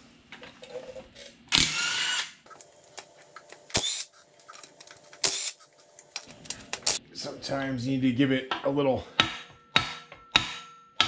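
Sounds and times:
impact wrench whine: 1.5s - 4.2s, 5.2s - 5.7s.

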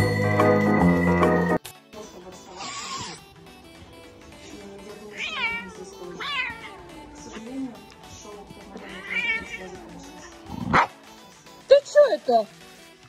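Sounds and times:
background music: 0.0s - 13.0s
cat meowing: 5.1s - 7.4s, 8.8s - 10.7s.

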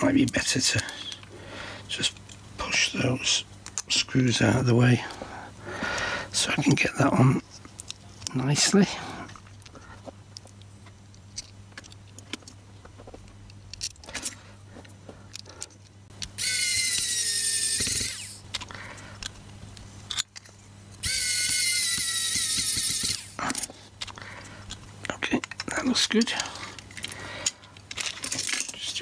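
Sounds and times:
electric screwdriver motor whine: 16.4s - 18.4s, 21.0s - 23.4s.

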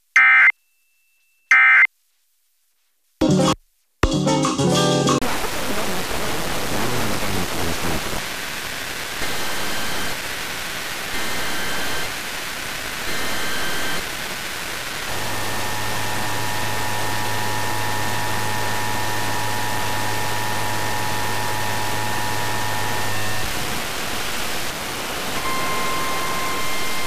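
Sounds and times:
radio static: 5.2s - 27.0s
alert data header bursts: 5.5s - 8.2s.

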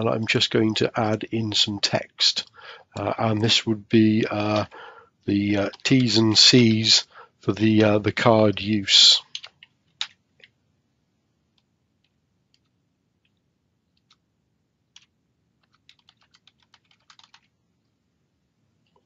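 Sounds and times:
keyboard typing: 4.3s - 4.8s, 5.4s - 6.5s, 9.2s - 10.6s, 11.5s - 14.3s, 14.9s - 17.6s.

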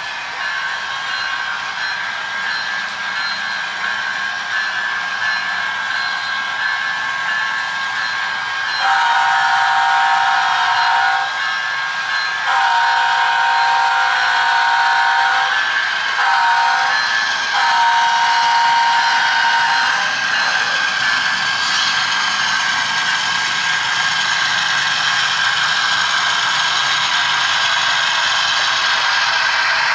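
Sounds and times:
multi-tone horn blasts: 8.8s - 11.4s, 12.5s - 15.6s, 16.2s - 17.0s, 17.6s - 20.2s.

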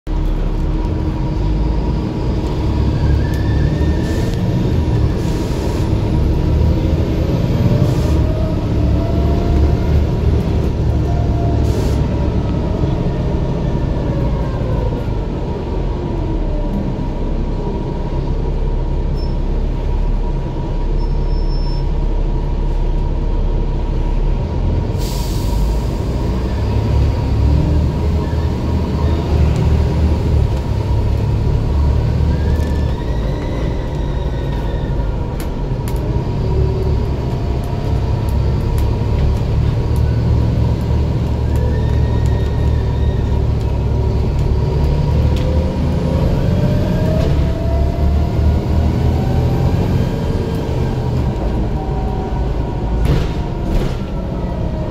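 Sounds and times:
bus diesel engine rumble: 0.1s - 54.9s
air brake hiss: 11.6s - 12.0s, 25.0s - 26.0s.

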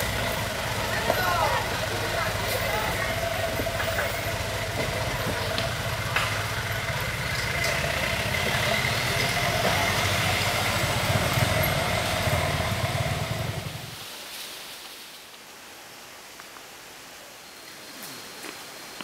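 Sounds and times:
truck engine rumbling: 0.0s - 14.0s.

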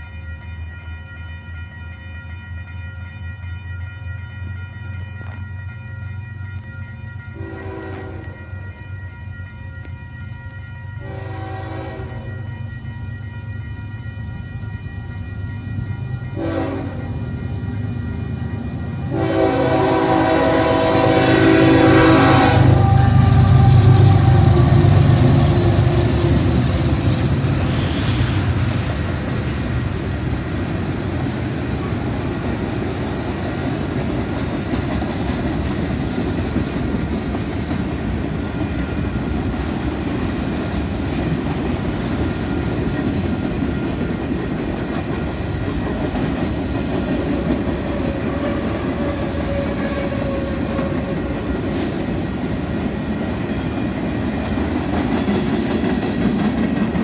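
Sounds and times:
diesel locomotive engine: 0.0s - 57.0s
train wheels clacking on rails: 17.0s - 57.0s.

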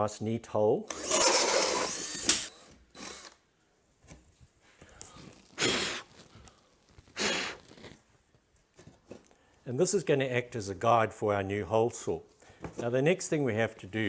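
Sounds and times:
person blowing through lips: 5.3s - 8.0s.

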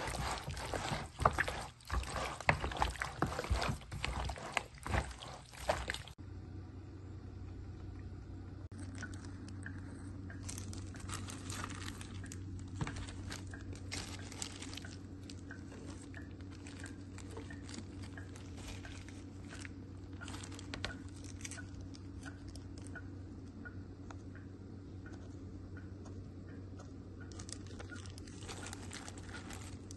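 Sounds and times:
hands squishing wet marinade: 0.0s - 6.2s, 8.7s - 23.0s, 27.3s - 29.9s
steady low hum: 0.0s - 29.9s.

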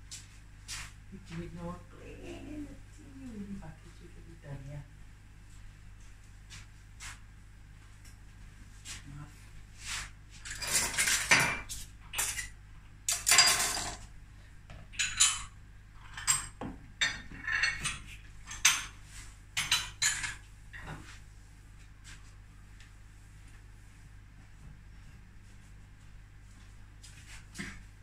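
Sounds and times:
kitchen utensils clinking and knocking: 10.5s - 12.5s, 15.0s - 18.9s, 19.6s - 20.4s.

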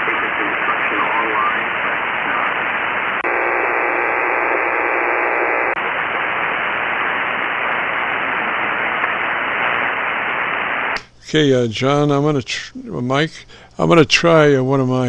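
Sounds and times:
shortwave radio hiss and static: 0.0s - 15.0s
faint steady buzz: 1.7s - 11.5s.

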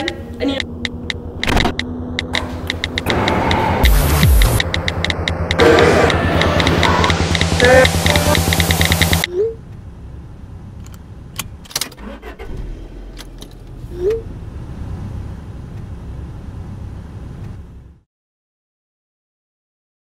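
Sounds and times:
sharp clicks: 0.0s - 9.3s
car engine and road rumble: 0.0s - 18.1s.

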